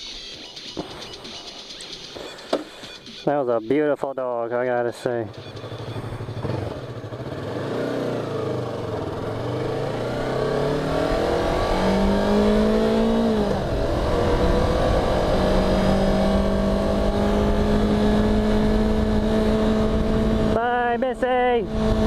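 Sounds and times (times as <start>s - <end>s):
motorcycle engine revving: 4.6s - 22.0s.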